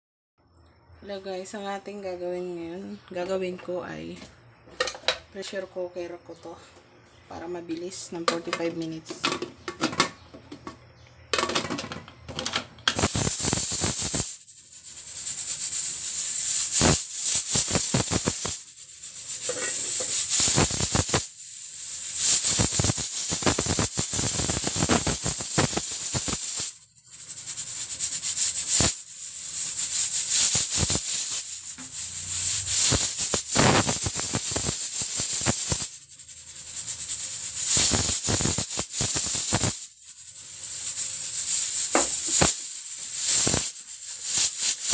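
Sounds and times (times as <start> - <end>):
steam hissing: 13.0 - 44.9.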